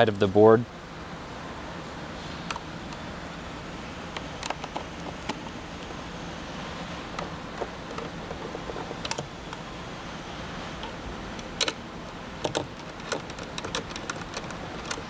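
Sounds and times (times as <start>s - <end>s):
nut driver clicking on metal parts: 7.2s - 9.6s, 10.8s - 15.0s.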